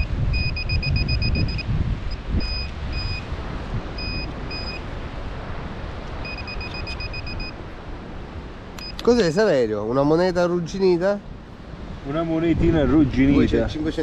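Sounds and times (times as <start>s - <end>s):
metal detector beeping: 0.0s - 3.3s, 4.0s - 4.9s, 6.2s - 7.6s, 8.8s - 9.2s
wind noise on microphone: 0.0s - 14.0s.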